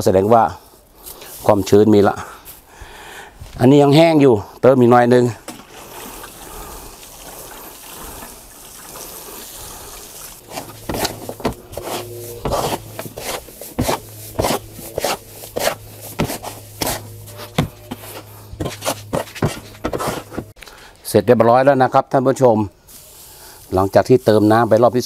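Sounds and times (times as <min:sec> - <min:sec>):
water pouring onto soil: 0:05.5 - 0:11.5
shovel scraping soil in a tub: 0:09.0 - 0:20.6.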